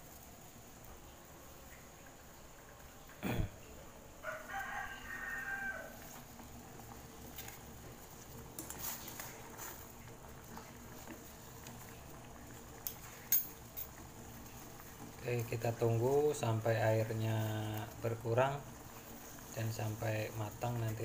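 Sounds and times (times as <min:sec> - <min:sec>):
rooster crowing: 0:04.2 - 0:06.2.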